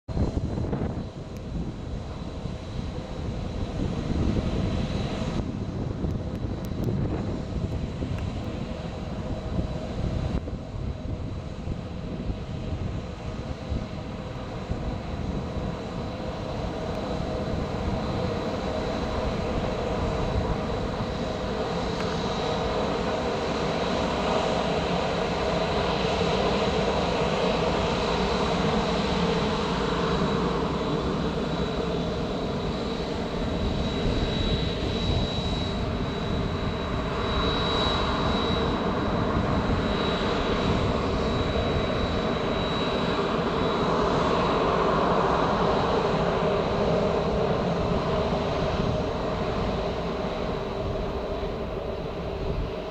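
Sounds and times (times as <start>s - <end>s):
jet engines at low thrust: 0.0s - 52.9s.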